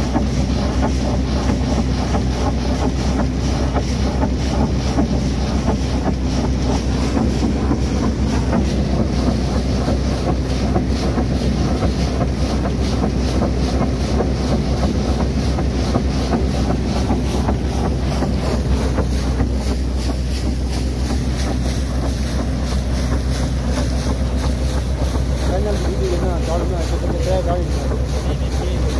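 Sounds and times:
low engine drone: 0:00.0 - 0:28.9
water and air rushing spray: 0:00.0 - 0:28.9.

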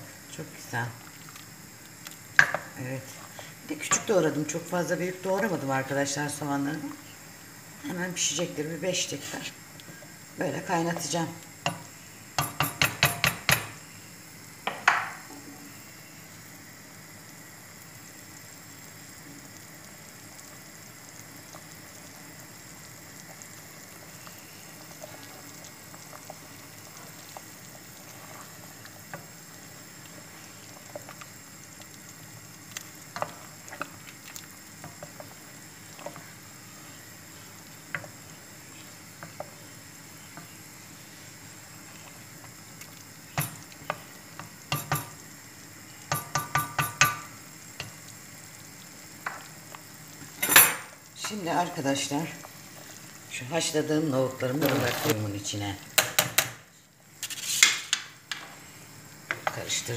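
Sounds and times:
pot boiling with bubbling pops: 0:00.0 - 0:59.9
wooden spoon knocking on pot: 0:02.4 - 0:02.7, 0:12.4 - 0:13.7, 0:14.7 - 0:15.2, 0:44.7 - 0:45.1, 0:46.1 - 0:47.3.

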